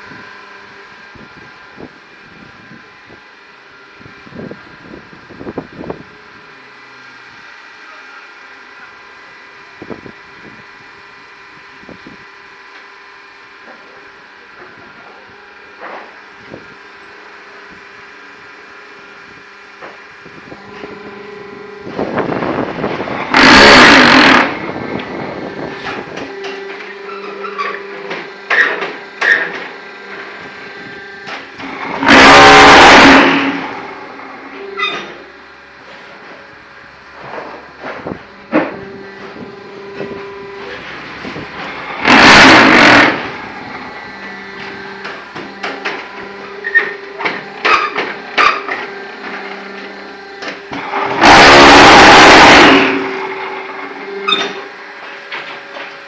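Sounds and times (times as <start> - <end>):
block-making machine humming: 0.0 - 56.0
loud burst of noise: 21.5 - 26.6, 31.2 - 34.5, 41.0 - 45.7, 50.7 - 54.6.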